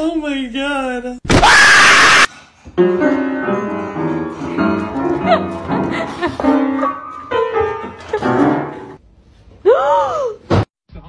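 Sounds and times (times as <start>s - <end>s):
piano-like notes: 2.7s - 9.0s.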